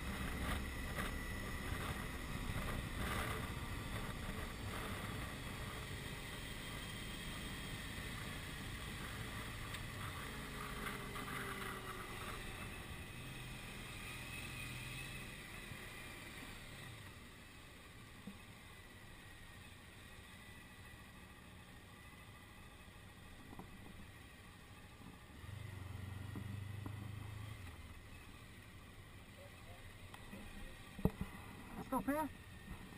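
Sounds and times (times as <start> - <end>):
motorcycle engine running: 0.0 - 32.9.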